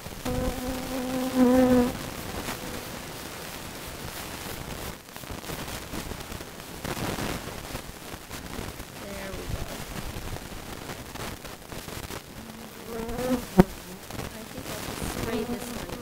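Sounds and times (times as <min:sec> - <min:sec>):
steady hiss: 0:00.0 - 0:16.0
honeybees buzzing: 0:00.2 - 0:03.3, 0:12.2 - 0:16.0.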